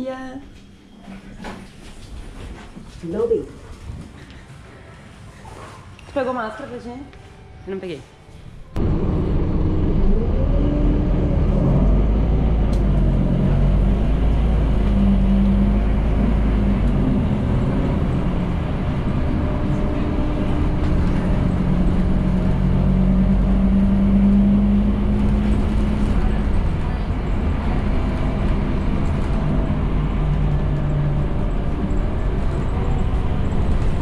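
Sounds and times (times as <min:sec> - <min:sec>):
road rumble: 0:08.2 - 0:34.0
bus engine: 0:08.3 - 0:34.0.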